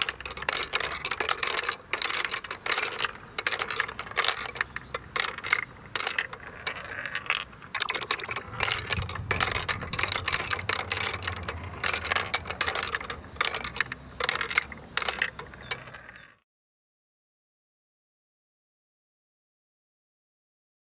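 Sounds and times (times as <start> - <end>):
marbles clicking through wooden run: 0.0 - 16.4.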